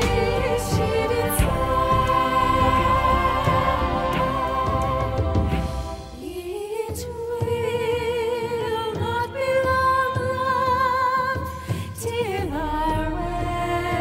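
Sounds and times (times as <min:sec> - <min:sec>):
low instrumental backing: 0:00.0 - 0:06.2
drums: 0:00.0 - 0:14.0
woman singing with vibrato: 0:00.0 - 0:14.0.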